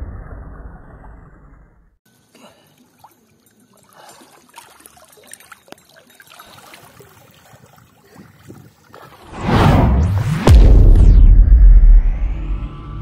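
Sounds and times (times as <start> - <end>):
water sloshing and splashing: 2.1 - 9.4
loud rushing whoosh: 9.3 - 12.6.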